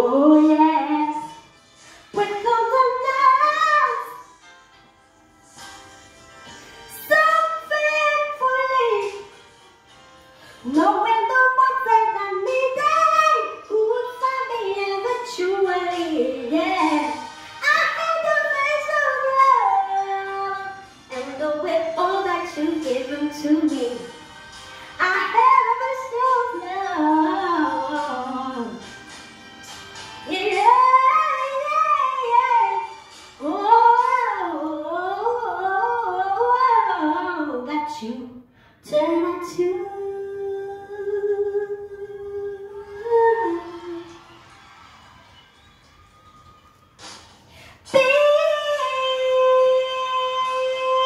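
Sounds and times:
woman singing into microphone: 0.0 - 1.5, 2.1 - 4.3, 6.9 - 9.3, 10.6 - 24.2, 25.0 - 28.9, 30.2 - 44.2, 47.7 - 51.0.

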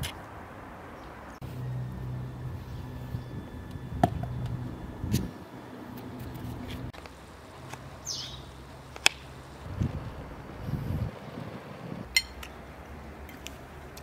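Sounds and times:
falling bird chirp: 8.0 - 8.5.

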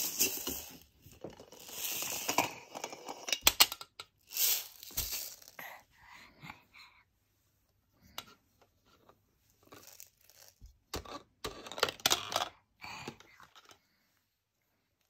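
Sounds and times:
toys clicking and rustling: 0.0 - 5.6, 9.7 - 13.8.

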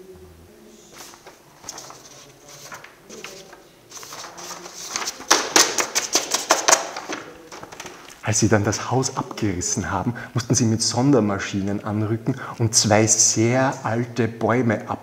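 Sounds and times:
paper sheets rustling: 0.9 - 9.2.

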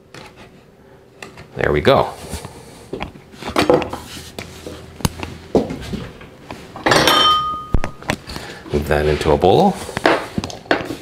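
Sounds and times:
dishes clattering: 6.8 - 7.8
bowl ringing tone: 7.2 - 8.0.

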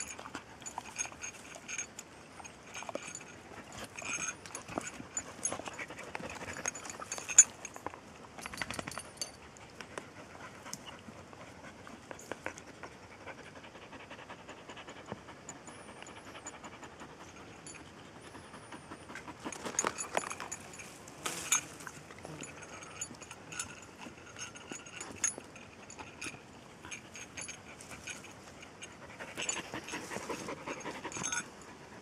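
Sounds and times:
dog panting: 9.5 - 20.5, 26.9 - 32.0.

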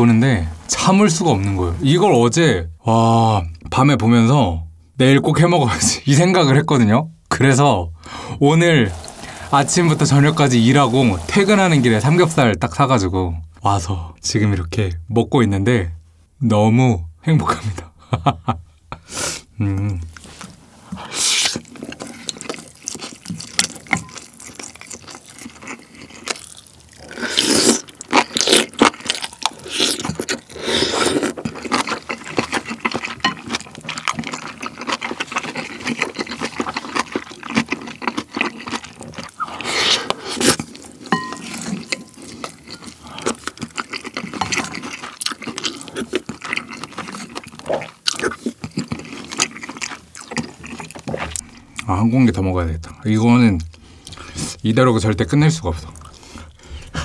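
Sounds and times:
spoon scraping ceramic bowl: 8.9 - 11.5, 41.1 - 42.9
wet chewing: 21.4 - 51.9, 55.7 - 57.0.

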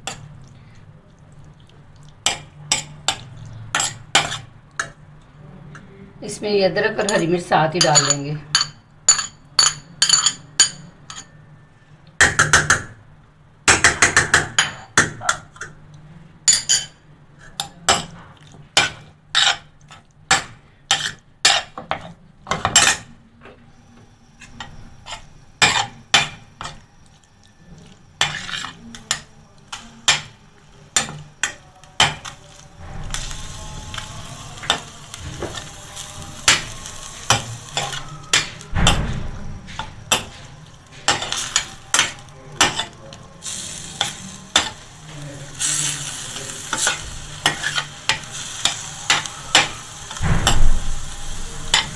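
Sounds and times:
spoon clinking against frying pan: 7.0 - 11.4
chicken sizzling: 23.7 - 51.9.

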